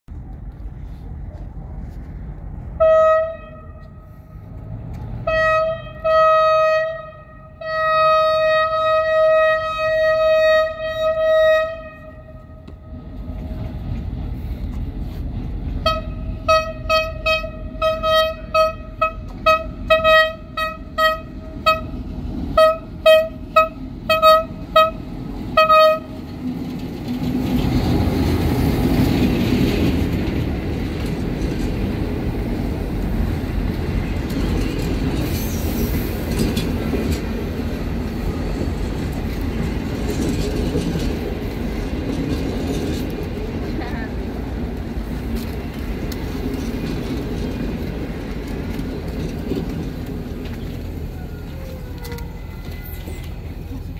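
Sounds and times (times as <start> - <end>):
train rumbling past: 0.1 - 53.9
locomotive air horn blasts: 2.8 - 4.6, 5.2 - 13.0, 15.8 - 26.2.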